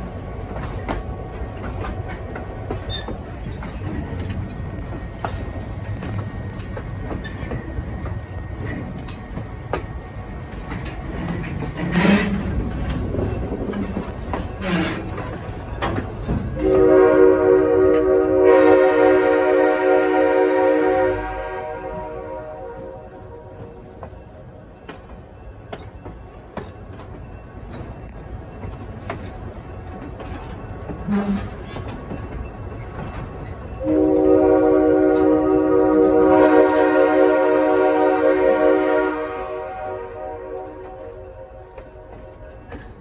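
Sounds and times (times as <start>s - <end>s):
wheels clicking over rail joints: 0.0s - 18.3s, 22.8s - 36.4s, 39.7s - 43.0s
train rolling rumble: 0.0s - 43.0s
train air horn chord: 16.6s - 23.7s, 33.8s - 41.8s.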